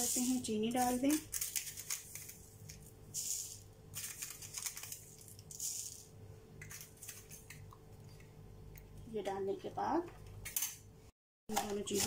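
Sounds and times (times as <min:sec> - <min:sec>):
sugar pouring into a plastic cup: 0:00.0 - 0:07.6.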